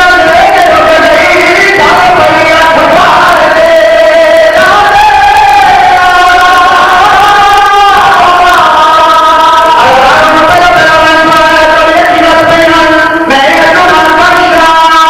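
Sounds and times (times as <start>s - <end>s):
man singing a lament: 0.0s - 15.0s
men chanting a lament: 0.0s - 15.0s.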